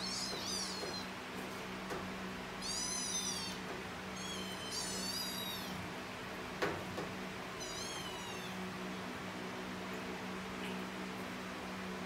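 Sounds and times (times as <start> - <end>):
kittens mewing: 0.0 - 1.2, 2.6 - 5.9, 7.6 - 9.1.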